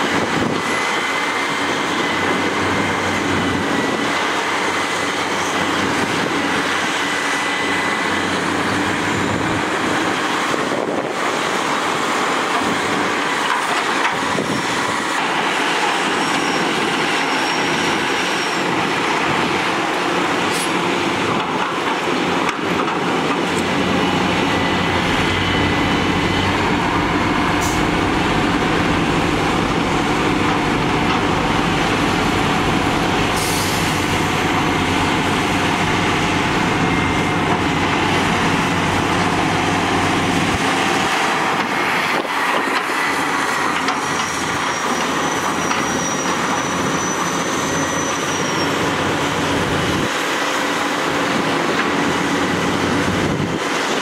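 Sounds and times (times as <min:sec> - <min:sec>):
excavator diesel engines under load: 0:00.0 - 0:54.0
thin high squeals: 0:15.9 - 0:18.8, 0:44.0 - 0:49.0.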